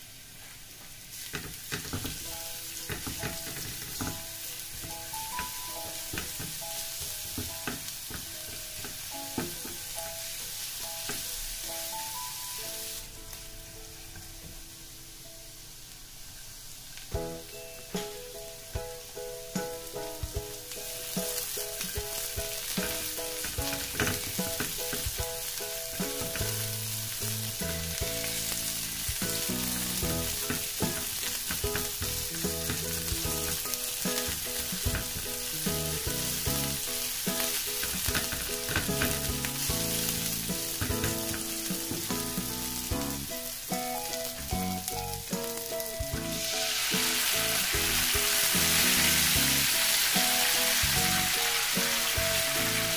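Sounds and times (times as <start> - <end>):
garlic sizzling in oil: 0.0 - 52.9
sauce poured into hot pan: 20.8 - 52.9.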